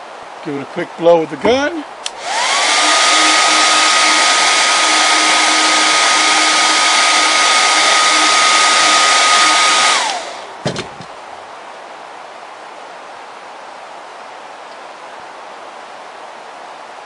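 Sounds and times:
heat gun motor whine: 2.1s - 10.7s
soft knocks: 10.6s - 11.2s.

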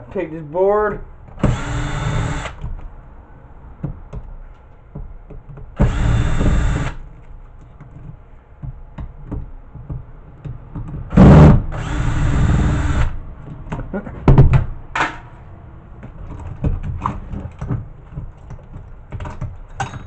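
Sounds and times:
cordless drill running: 1.4s - 2.6s, 5.8s - 7.0s, 11.8s - 13.1s.

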